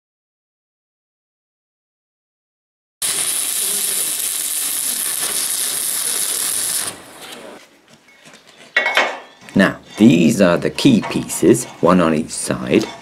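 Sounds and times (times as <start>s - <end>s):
welding arc crackling and hissing: 3.0s - 7.6s.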